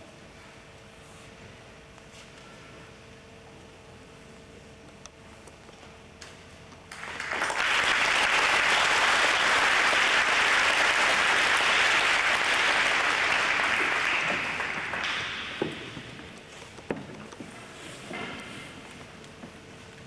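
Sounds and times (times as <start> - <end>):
audience applauding: 6.9 - 16.1.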